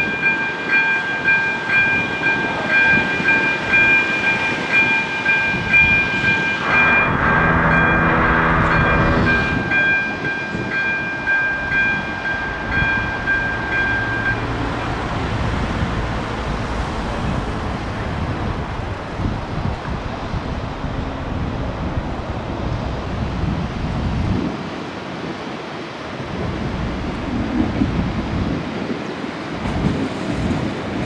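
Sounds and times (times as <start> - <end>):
electronic warning bell ringing: 0.0 - 14.9
low horn-like tone: 6.6 - 9.8
low rumble: 6.6 - 9.8.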